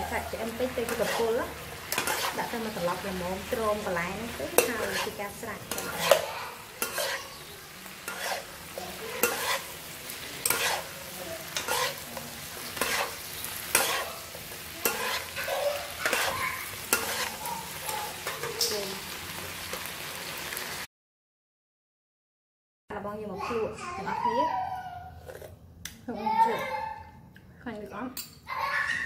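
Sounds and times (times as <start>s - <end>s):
metal spatula scraping wok: 0.0s - 19.8s
food sizzling: 0.0s - 20.9s.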